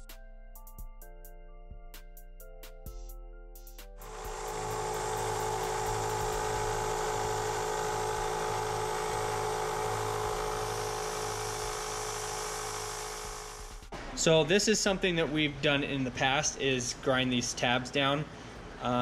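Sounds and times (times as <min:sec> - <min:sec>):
belt sander running: 0:04.0 - 0:13.9.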